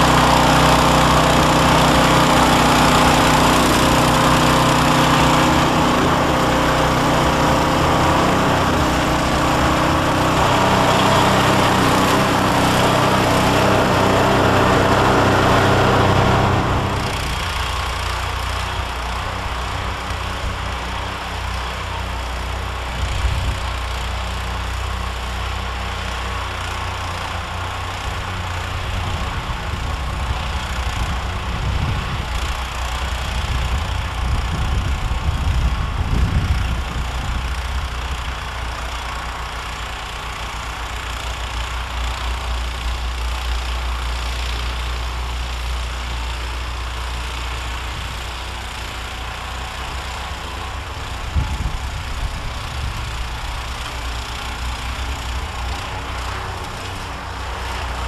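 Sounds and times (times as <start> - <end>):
distant snowblower engine hum: 0.0 - 58.0.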